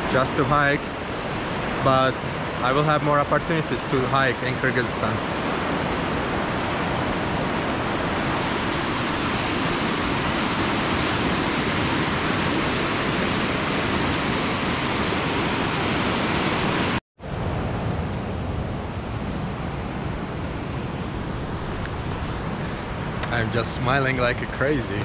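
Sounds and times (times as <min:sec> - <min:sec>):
fast-flowing river rushing: 0:00.0 - 0:17.0.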